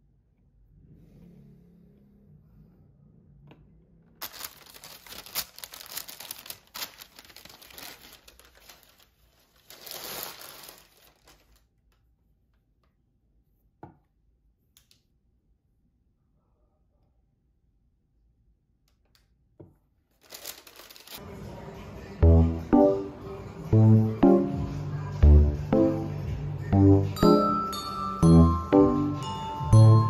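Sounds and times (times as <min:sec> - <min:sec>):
tissue paper crinkling: 0:04.2 - 0:11.7, 0:20.1 - 0:21.2.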